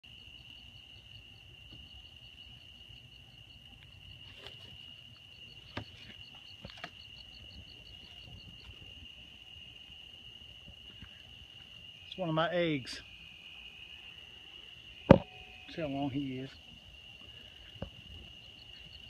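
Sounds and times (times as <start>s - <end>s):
insect chirping: 0.0s - 19.0s
insect high trill: 0.1s - 19.0s
sharp knocks: 15.1s - 15.3s.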